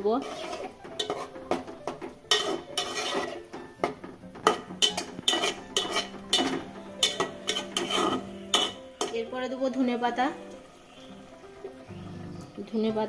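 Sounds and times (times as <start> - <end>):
spatula scraping a metal pot: 0.0 - 9.3.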